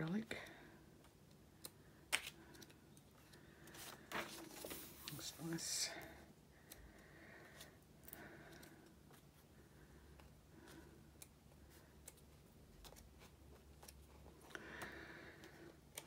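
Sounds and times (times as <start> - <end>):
low room hum: 0.0 - 16.0
book pages turning: 1.6 - 5.6, 10.2 - 16.0.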